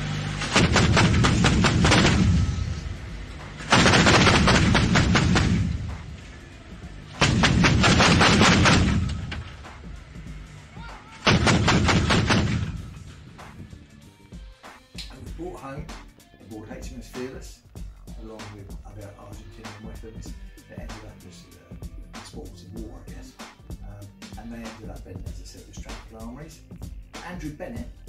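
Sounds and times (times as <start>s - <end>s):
heavy rumble: 0.0s - 14.1s
anti-aircraft guns firing: 0.4s - 2.9s, 3.6s - 6.2s, 7.1s - 9.7s, 11.2s - 13.5s.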